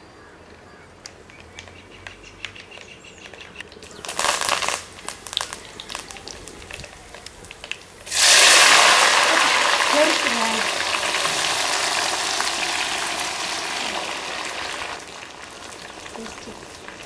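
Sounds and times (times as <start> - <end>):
seeds popping in hot oil: 3.7 - 17.0
leaves sizzling in oil: 3.8 - 17.0.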